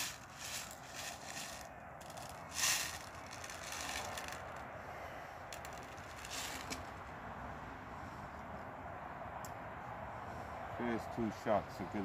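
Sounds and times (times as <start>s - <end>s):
small clicks and scraping: 0.0s - 4.7s, 5.5s - 6.9s.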